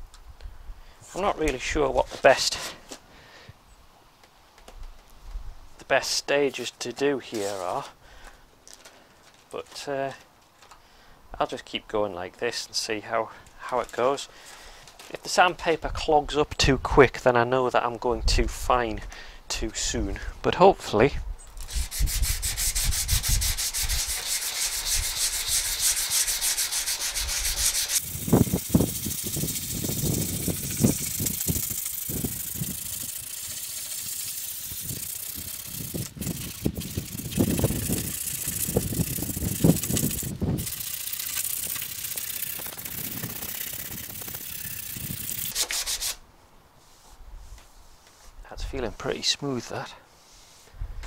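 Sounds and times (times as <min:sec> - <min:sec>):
sandpaper rubbing on filler: 0:21.7 - 0:31.6, 0:45.4 - 0:46.2.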